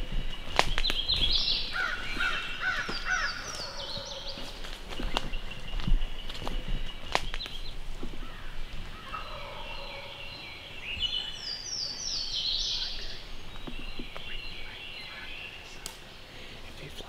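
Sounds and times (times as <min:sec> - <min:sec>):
turkey gobbling: 0:08.9 - 0:10.4.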